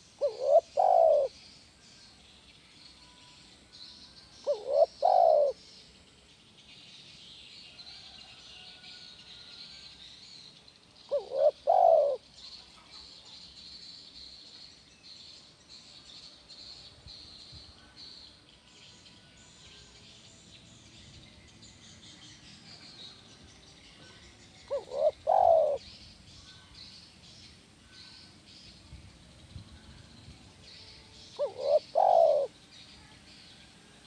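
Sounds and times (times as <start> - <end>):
dove cooing: 0.0 - 1.4, 4.4 - 5.6, 11.1 - 12.2, 24.7 - 25.9, 31.4 - 32.6.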